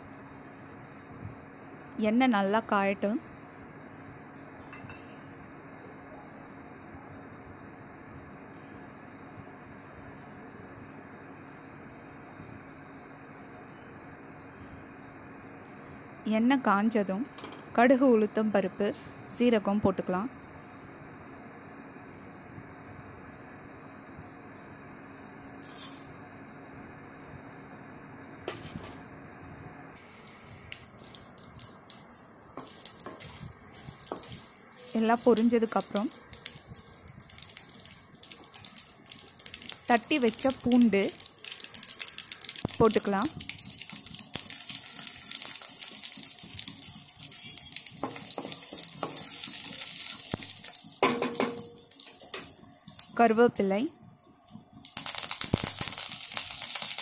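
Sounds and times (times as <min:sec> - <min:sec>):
seeds sizzling in hot oil: 0:30.0 - 0:57.0
mustard seeds popping: 0:30.7 - 0:51.0, 0:54.8 - 0:57.0
wooden spatula stirring: 0:30.9 - 0:38.7.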